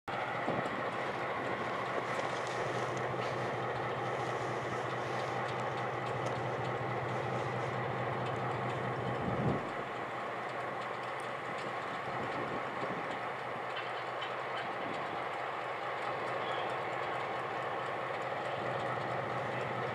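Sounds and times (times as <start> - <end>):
diesel locomotives idling: 0.0 - 19.9.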